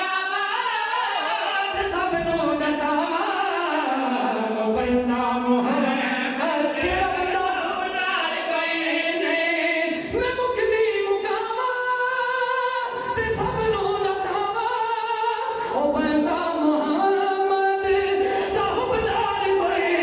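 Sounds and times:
men singing into a microphone: 0.0s - 20.0s.

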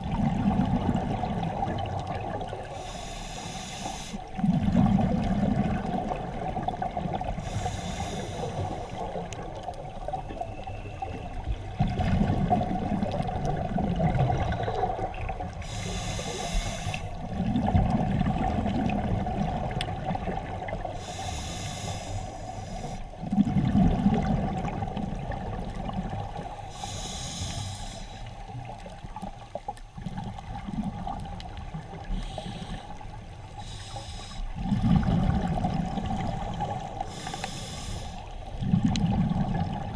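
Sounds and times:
exhaled bubbles rushing: 0.0s - 2.8s, 4.4s - 7.5s, 8.6s - 15.6s, 17.2s - 20.9s, 23.2s - 26.6s, 30.0s - 32.1s, 34.5s - 37.0s, 38.4s - 39.9s
regulator hiss on inhalation: 2.7s - 4.3s, 7.4s - 9.0s, 15.6s - 17.2s, 21.0s - 23.1s, 26.6s - 28.4s, 32.1s - 34.6s, 36.3s - 38.4s.

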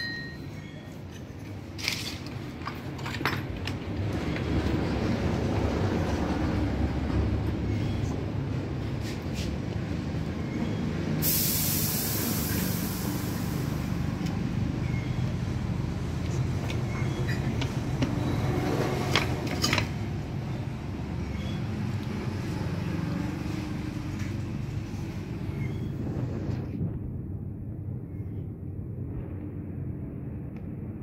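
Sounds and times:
engine rumble: 0.0s - 31.0s
loud hiss: 11.2s - 14.1s.

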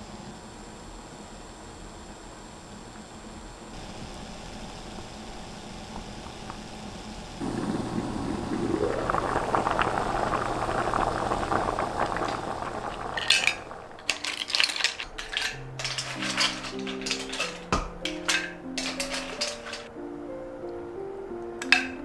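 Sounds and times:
rising hiss: 3.8s - 14.0s
shells clattering on a plate: 13.2s - 19.9s
background music: 15.1s - 22.0s.

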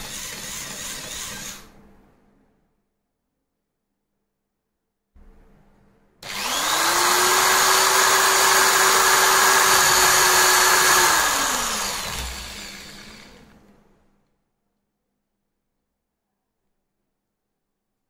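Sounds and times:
electric drill spinning: 0.0s - 1.7s, 6.2s - 13.6s.

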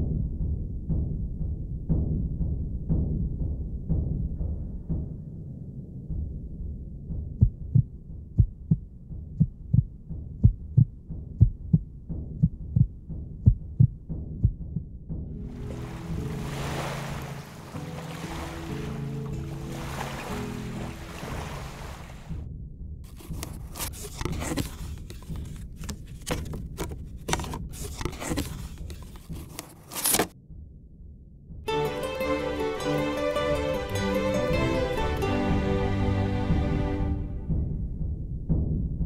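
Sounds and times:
human heartbeat: 0.0s - 5.2s, 6.1s - 16.0s, 37.3s - 39.0s
jewelry box clicks and scraping: 23.1s - 30.4s.

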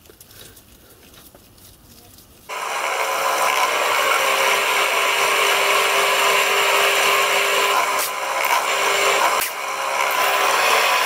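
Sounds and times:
pillar drill cutting metal: 2.5s - 11.0s.

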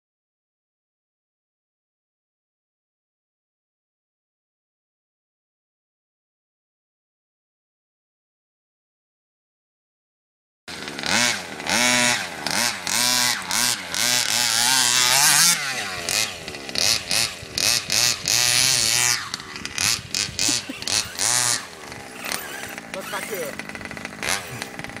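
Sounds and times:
small two-stroke engine revving: 10.7s - 25.0s.

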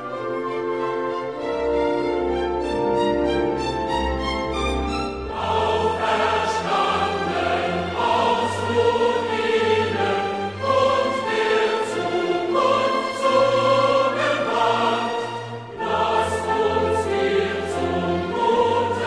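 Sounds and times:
choir singing: 0.0s - 19.0s
orchestra playing: 0.0s - 19.0s.

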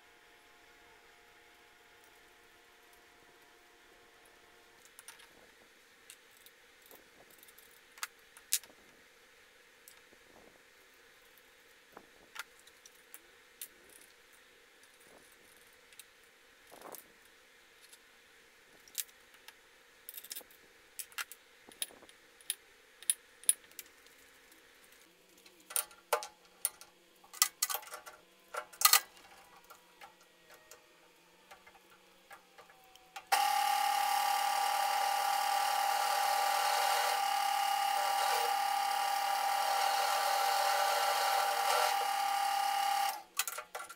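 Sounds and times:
metal parts clicking and clinking: 20.1s - 24.2s, 24.9s - 30.7s
drill press running: 33.2s - 43.3s.

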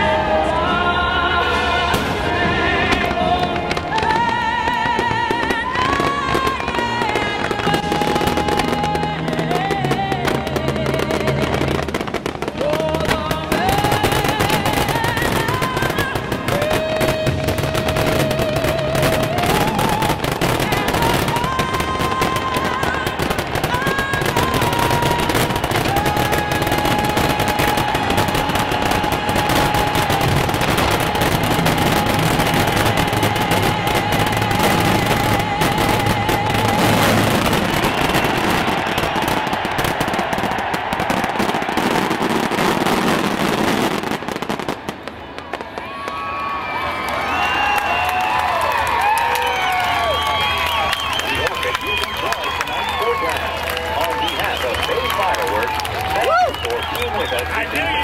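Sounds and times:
music with long vibrato notes: 0.0s - 40.1s
fireworks exploding in a barrage: 1.9s - 58.0s.

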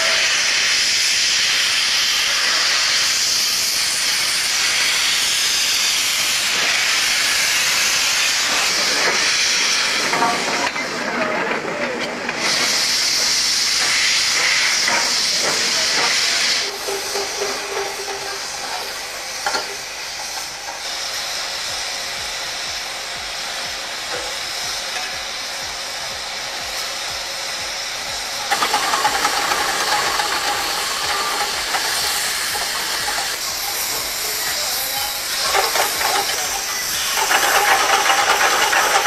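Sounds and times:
steam locomotive hissing: 0.0s - 39.0s
metal clanks and clatter: 10.0s - 12.4s, 14.4s - 20.5s, 28.5s - 34.1s, 35.4s - 39.0s.

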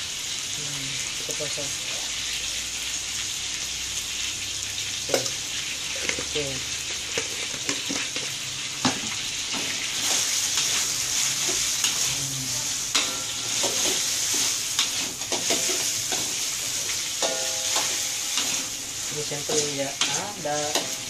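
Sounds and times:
chicken sizzling in wok: 0.0s - 21.0s
metal spatula scraping wok: 9.5s - 21.0s.

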